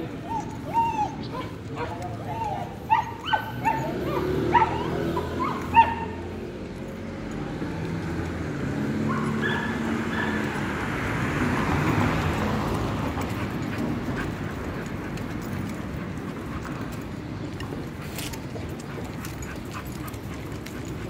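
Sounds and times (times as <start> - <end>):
dog yelping: 0.1 - 6.3, 9.1 - 10.6
passing vehicle rushing: 3.6 - 15.6.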